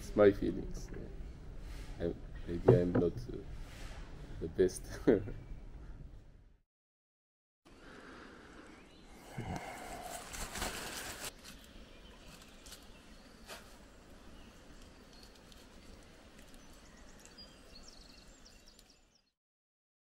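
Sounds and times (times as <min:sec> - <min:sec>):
rustling handling noise: 0:10.0 - 0:13.8, 0:14.5 - 0:17.3
faint high bird chirps: 0:16.4 - 0:19.4.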